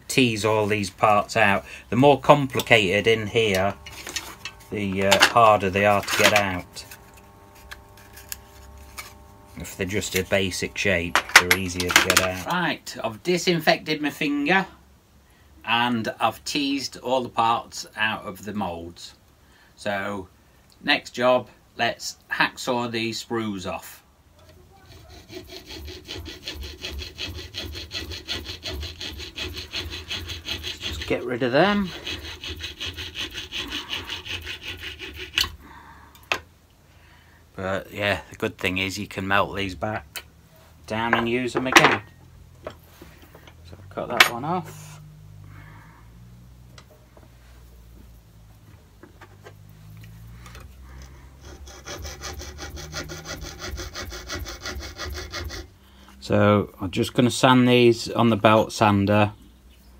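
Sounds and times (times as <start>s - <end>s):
hacksaw cutting metal: 2.5s - 12.5s, 24.8s - 35.6s, 51.4s - 55.7s.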